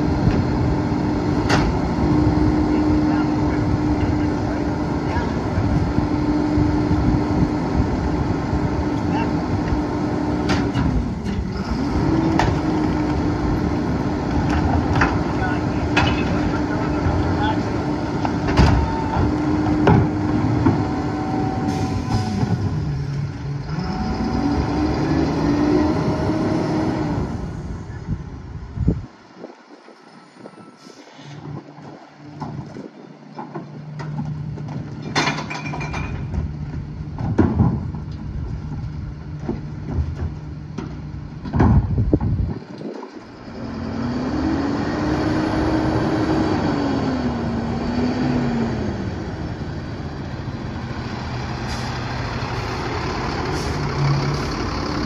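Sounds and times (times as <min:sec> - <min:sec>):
garbage truck engine revving: 0:00.0 - 0:27.9, 0:43.2 - 0:55.0.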